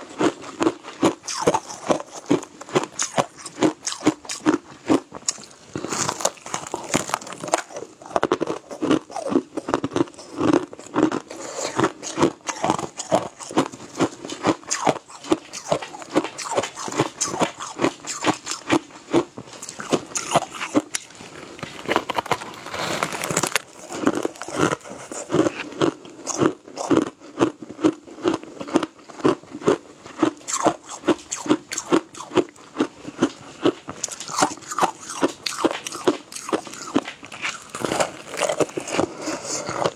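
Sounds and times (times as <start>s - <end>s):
crunching and chewing ice: 0.0s - 39.9s.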